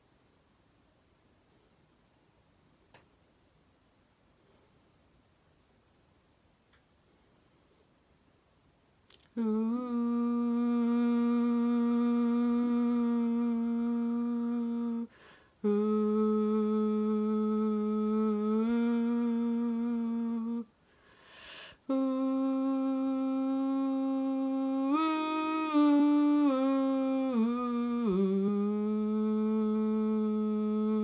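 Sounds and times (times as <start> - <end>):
woman humming: 9.1 - 20.7, 21.8 - 31.0
breaths: 15.1 - 15.6, 20.8 - 21.9.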